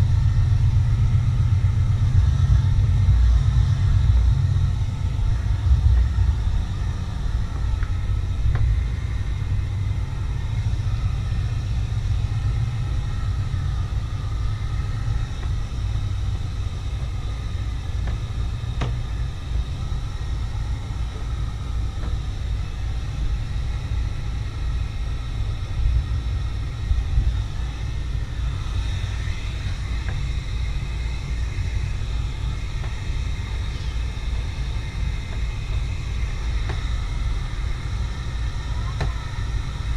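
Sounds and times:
wind buffeting microphone: 0.0 - 39.9.

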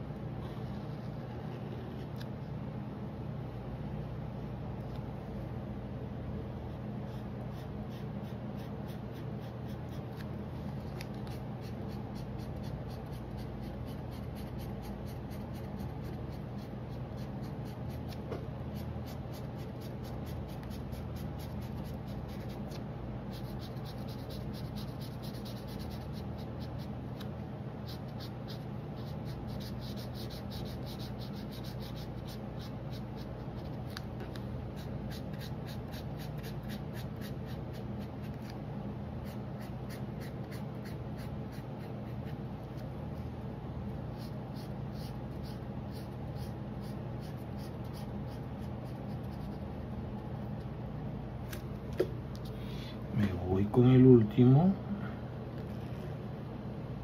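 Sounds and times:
steady low hum: 0.0 - 57.0
marker scribbling on paper: 7.0 - 10.4, 11.0 - 34.0, 34.7 - 38.6, 39.2 - 42.8, 44.1 - 49.8.

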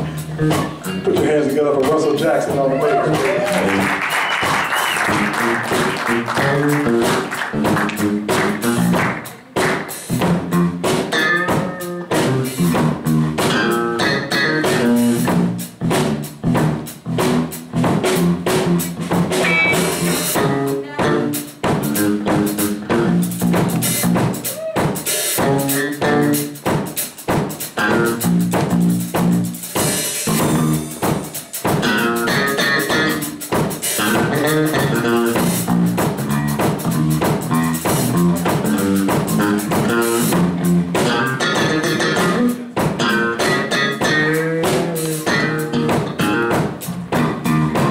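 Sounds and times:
drum kit beat: 0.0 - 47.9
electric bass guitar: 0.0 - 47.9.

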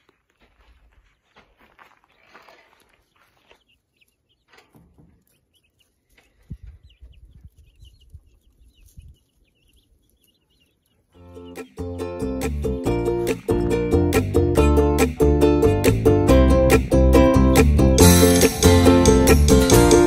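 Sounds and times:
chicks peeping: 2.0 - 12.4
ukulele music: 11.2 - 20.0.

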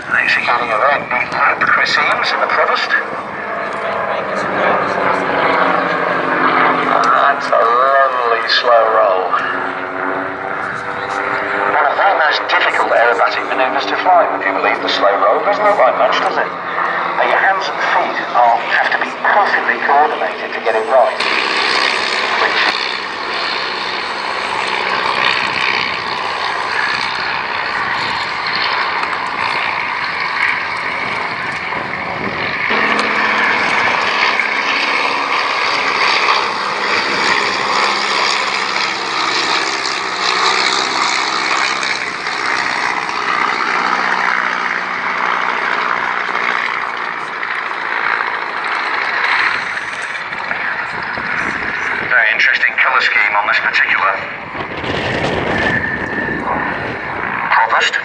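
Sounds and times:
propeller aircraft engine: 0.0 - 58.0.

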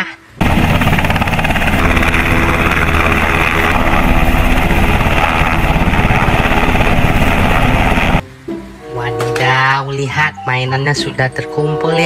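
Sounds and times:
helicopter hovering: 0.4 - 8.2.

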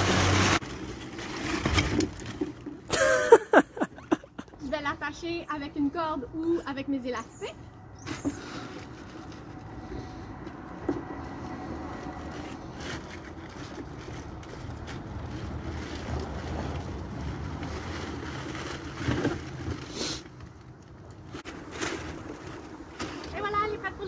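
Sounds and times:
plastic tarp rustling: 0.0 - 4.1, 11.6 - 24.0.

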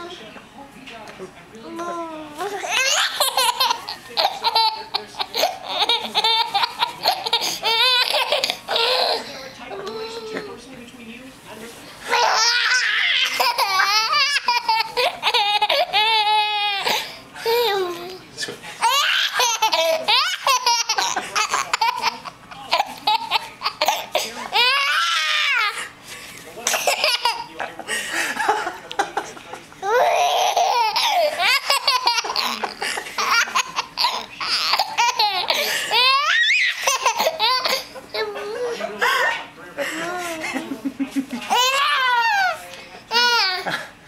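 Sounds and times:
baby laughing: 2.6 - 9.2, 12.1 - 18.2, 18.8 - 25.8, 26.6 - 27.6, 29.8 - 39.3, 40.0 - 43.8
baby laughing and squealing: 12.1 - 18.1, 29.8 - 32.6, 33.2 - 38.5, 41.5 - 43.6.

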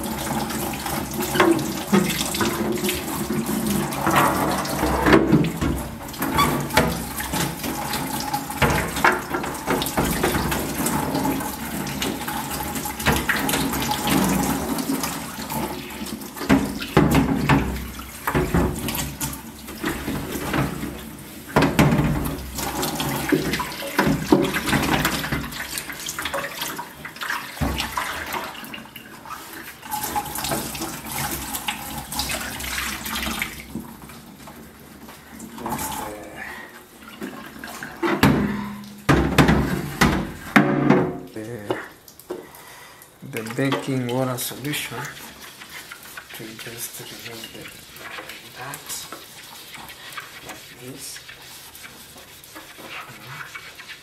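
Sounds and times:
tap water splashing into sink: 0.0 - 54.0
plastic drawer bumping in sink: 1.3 - 7.7, 8.5 - 11.4, 16.4 - 19.2, 21.6 - 25.6, 38.0 - 41.2.

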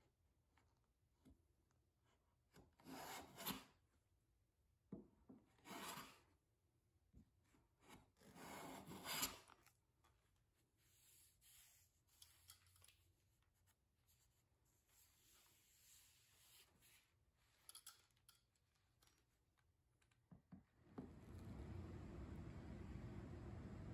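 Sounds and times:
faint handling sounds: 9.3 - 22.3.

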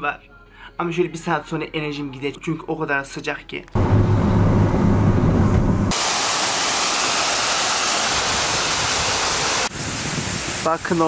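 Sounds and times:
low rumbling noise: 3.8 - 7.0.

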